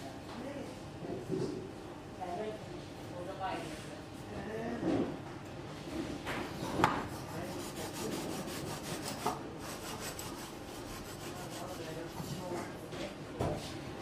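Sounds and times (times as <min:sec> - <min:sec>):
wire slicer rasping through cake: 0:07.1 - 0:12.2.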